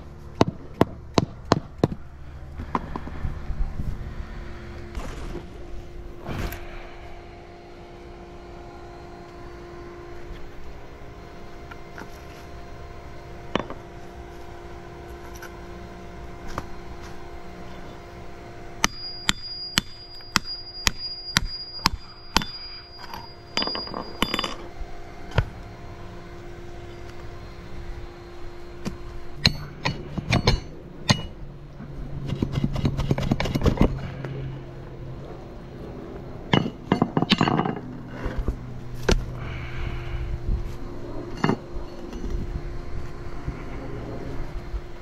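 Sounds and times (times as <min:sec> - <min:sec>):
low hum: 0:00.0 - 0:45.0
hammer striking chisel: 0:18.8 - 0:24.6, 0:29.4 - 0:31.3
shovel scraping and knocking: 0:32.2 - 0:34.1.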